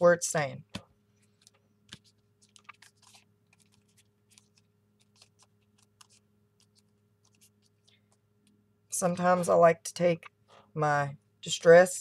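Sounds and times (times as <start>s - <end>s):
low steady hum: 0.0s - 12.0s
paper ticks and rustles: 1.2s - 8.6s.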